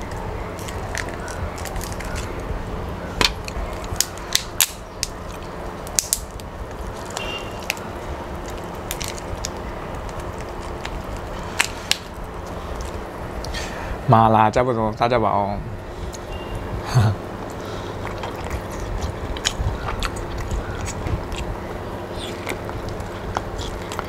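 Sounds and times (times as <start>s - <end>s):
steady low hum: 0.0s - 24.0s
lobster shell cracking: 0.5s - 2.5s, 3.2s - 13.5s.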